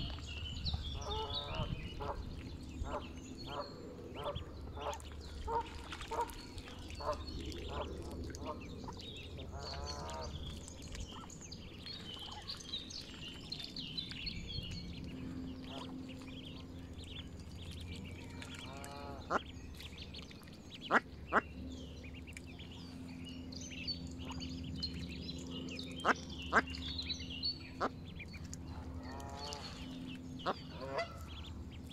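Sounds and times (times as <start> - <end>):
ducklings peeping: 0.0 - 31.9
adult waterfowl calls: 30.4 - 31.5.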